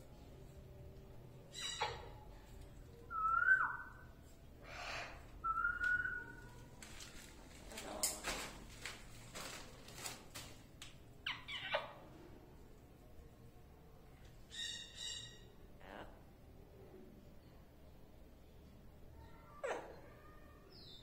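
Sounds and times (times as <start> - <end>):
parrot harsh noises: 1.5 - 2.3, 4.6 - 5.3, 11.2 - 12.0
parrot whistling: 3.1 - 4.0.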